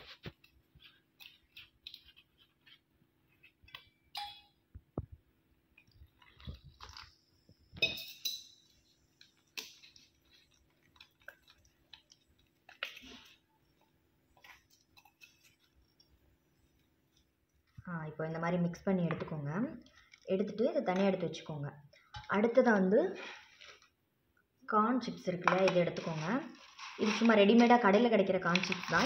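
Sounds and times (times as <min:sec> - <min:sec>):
spoon scraping metal bowl: 0:25.4 - 0:29.0.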